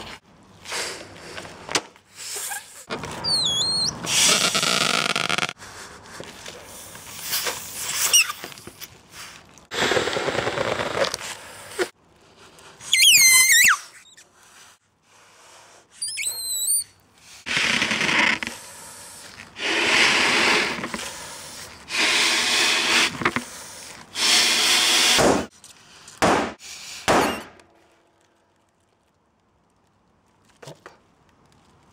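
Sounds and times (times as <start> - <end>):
rubber squeal: 2.3 - 5.6, 7.9 - 8.5, 12.8 - 14.2, 16.0 - 18.6
breaths into balloon: 12.7 - 25.2.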